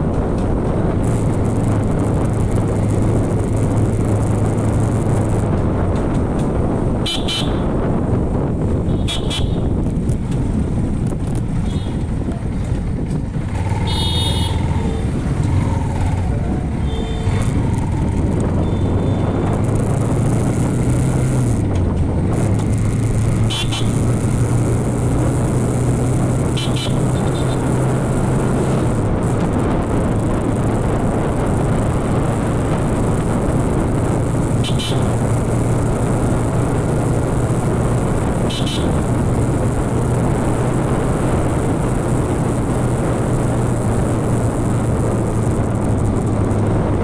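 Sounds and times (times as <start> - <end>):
motorcycle engine droning: 0.0 - 47.0
wind on microphone: 0.0 - 47.0
horn toots: 7.0 - 7.8, 8.8 - 9.8, 13.6 - 19.6, 23.4 - 24.2, 26.4 - 27.9, 34.5 - 35.3, 38.3 - 39.1.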